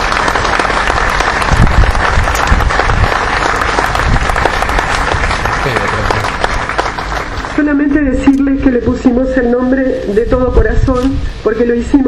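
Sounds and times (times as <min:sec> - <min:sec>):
audience applauding: 0:00.0 - 0:07.9.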